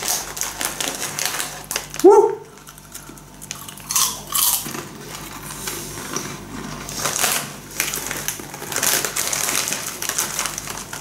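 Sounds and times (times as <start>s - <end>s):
snacks crunching while chewed: 0.0s - 11.0s.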